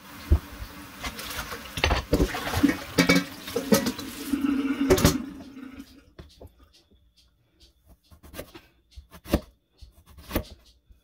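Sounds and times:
tap water running into sink: 0.0 - 6.1
objects clattering in sink: 0.2 - 6.5.

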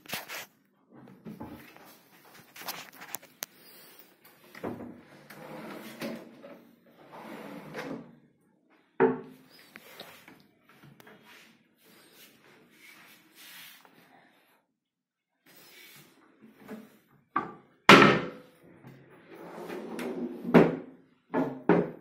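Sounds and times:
cabinet doors opening and shutting: 4.4 - 8.2, 17.4 - 18.4, 19.2 - 22.0.

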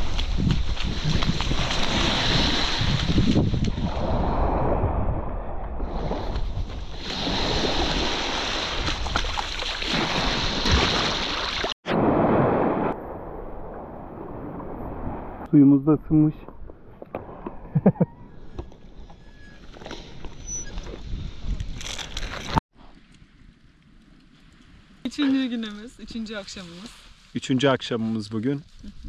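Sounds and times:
wind gusting on microphone: 0.0 - 11.3, 16.1 - 22.6
waves washing in: 0.0 - 15.7.

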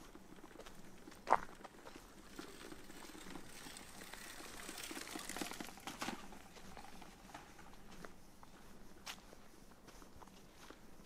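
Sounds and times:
bicycle tyres crackling over leaves: 0.0 - 8.2.

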